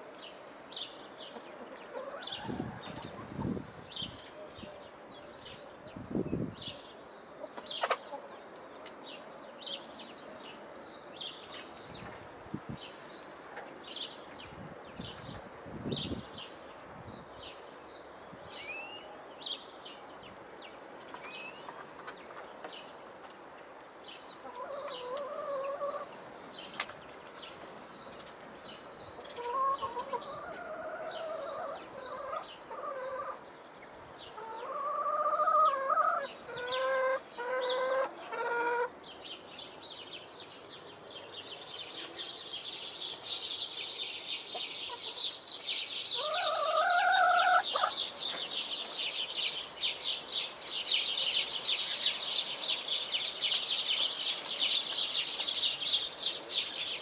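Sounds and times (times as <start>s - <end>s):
hens clucking: 7.4s - 8.4s, 21.6s - 22.8s, 24.4s - 26.2s, 29.2s - 33.4s, 34.4s - 38.9s, 44.5s - 45.4s, 46.2s - 48.4s.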